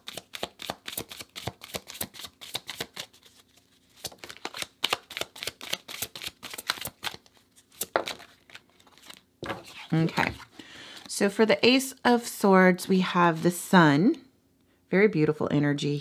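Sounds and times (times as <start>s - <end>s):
cards being shuffled: 0.0s - 11.1s.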